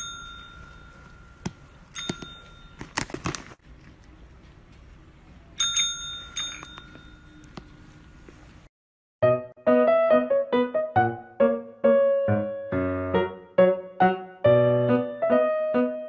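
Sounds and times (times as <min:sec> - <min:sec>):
desk call bell dings: 0:00.0 - 0:02.9, 0:05.6 - 0:07.5.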